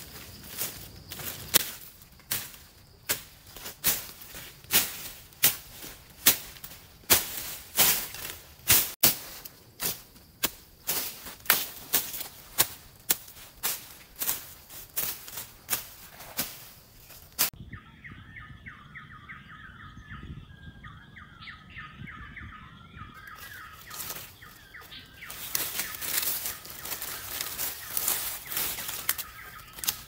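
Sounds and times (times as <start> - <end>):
machete slashing undergrowth: 0.4 - 17.5, 25.3 - 30.0.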